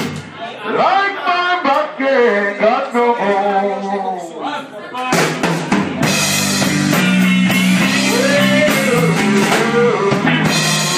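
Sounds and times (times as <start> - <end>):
drum kit: 0.0 - 0.4, 5.0 - 10.9
electric guitar: 6.0 - 10.9.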